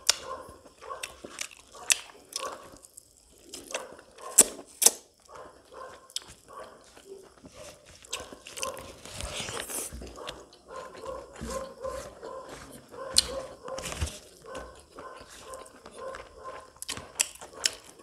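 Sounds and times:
chewing and lip smacks: 0.0 - 18.0
fingers squishing wet food: 6.1 - 18.0.

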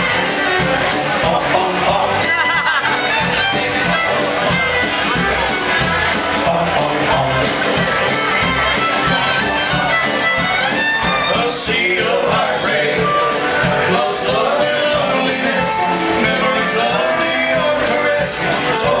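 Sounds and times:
country band playing: 0.0 - 19.0.

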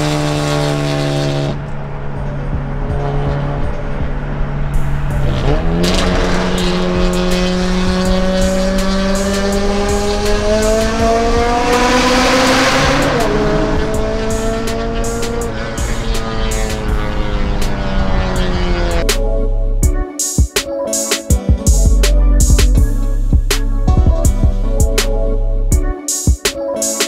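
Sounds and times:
car engine accelerating hard: 0.0 - 19.0.

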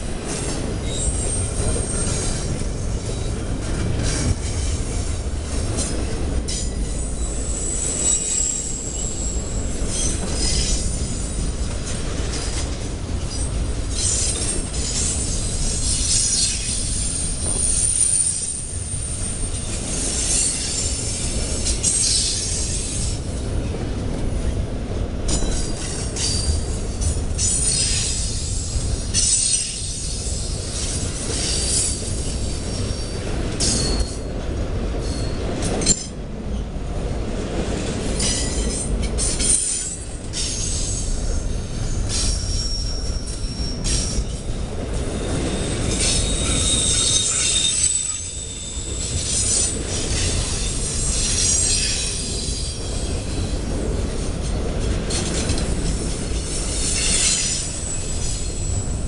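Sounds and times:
freight train rumbling past: 0.0 - 59.0
wheel squeal: 0.8 - 2.5, 6.5 - 11.4, 13.3 - 23.2, 27.4 - 34.2, 38.2 - 53.6, 55.1 - 58.9.

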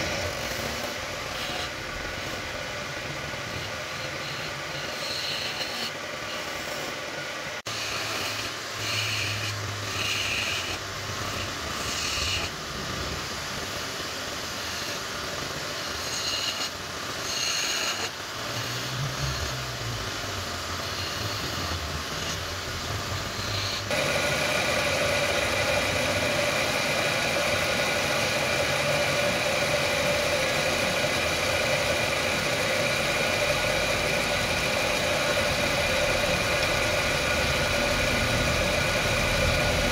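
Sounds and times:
wood lathe motor whine: 0.0 - 12.6, 19.2 - 39.9
steel scraper scraping wood: 4.1 - 6.9, 7.7 - 12.5, 15.9 - 18.9.

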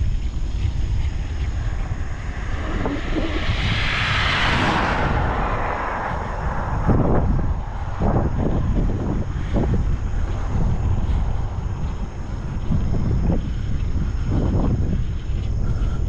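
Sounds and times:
wind rumble on microphone: 0.0 - 16.0
car passing on highway: 0.8 - 13.4.

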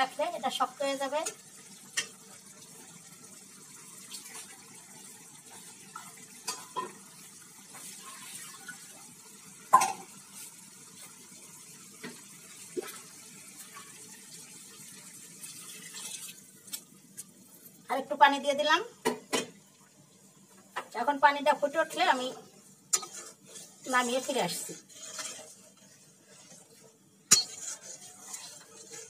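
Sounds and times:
curry simmering in a pan: 0.0 - 29.0
water poured into pan: 1.4 - 16.7.

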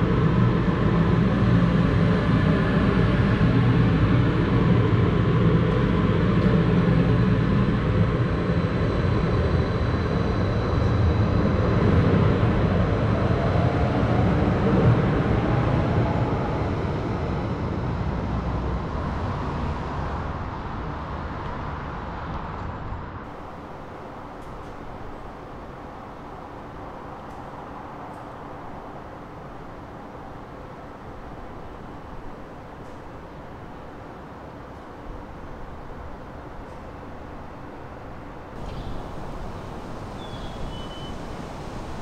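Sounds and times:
light rail train pulling out: 23.3 - 42.0.

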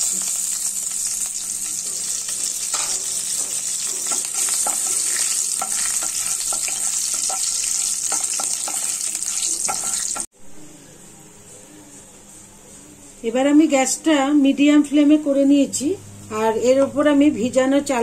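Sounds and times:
spices sizzling in hot oil: 0.0 - 10.3.

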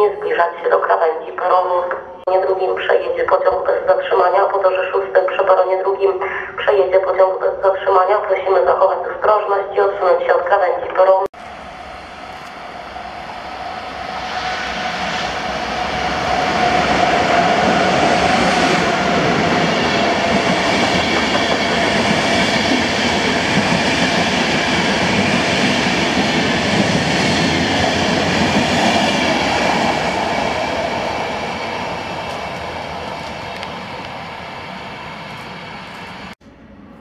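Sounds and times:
electric locomotive whine: 11.4 - 37.0
train wheels rumbling and clattering: 14.1 - 36.4.

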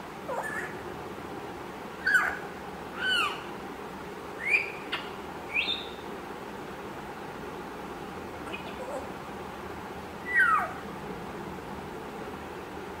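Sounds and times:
parrot whistled calls: 0.3 - 0.8, 2.0 - 2.4, 3.0 - 3.5, 4.4 - 6.0, 10.2 - 10.8.

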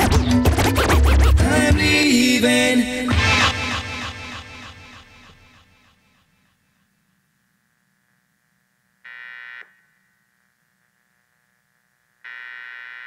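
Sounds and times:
faint steady hum: 4.7 - 13.0
harsh electronic buzzes: 12.2 - 13.0.

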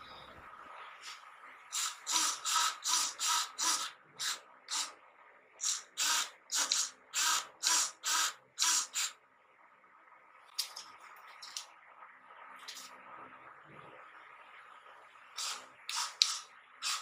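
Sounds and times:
servo whirring: 1.7 - 4.9.

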